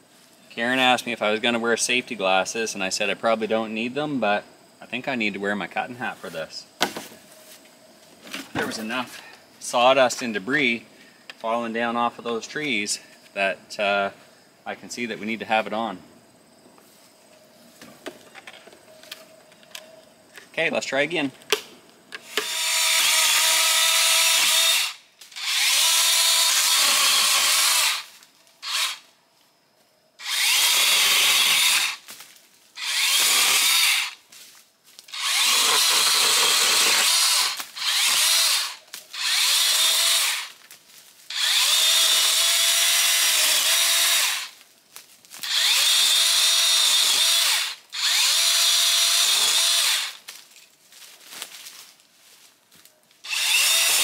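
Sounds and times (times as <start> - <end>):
electric pole saw whirring: 22.2 - 29.1, 30.2 - 32.1, 32.8 - 34.2, 35.1 - 40.6, 41.3 - 44.6, 45.4 - 50.2, 53.2 - 54.0.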